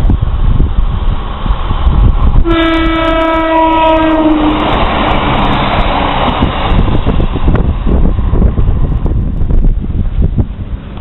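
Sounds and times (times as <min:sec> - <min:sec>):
rush of passing train: 0:00.0 - 0:11.0
wind on microphone: 0:00.0 - 0:11.0
train horn: 0:02.4 - 0:04.9.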